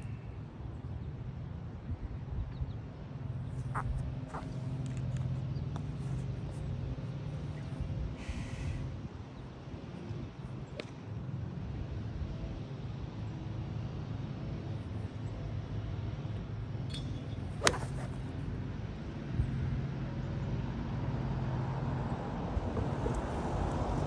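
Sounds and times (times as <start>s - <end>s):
road traffic hum: 0.0s - 24.0s
golf club striking ball: 16.9s - 18.2s.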